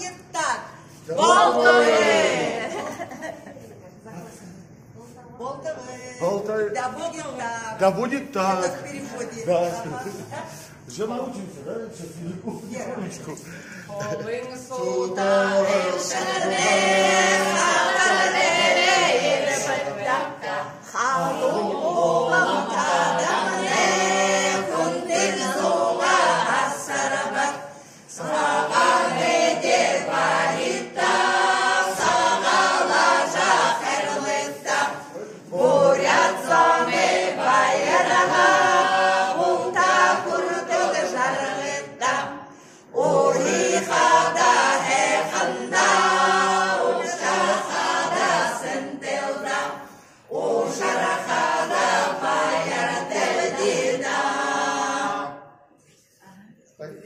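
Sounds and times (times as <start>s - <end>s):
women singing unaccompanied: 14.7s - 55.4s.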